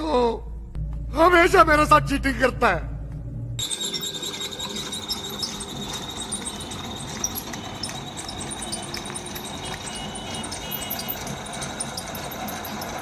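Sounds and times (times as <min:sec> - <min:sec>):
electric motor straining: 0:03.6 - 0:13.0
light mechanical clicks and rattles: 0:03.6 - 0:13.0
thin high whine: 0:03.6 - 0:13.0.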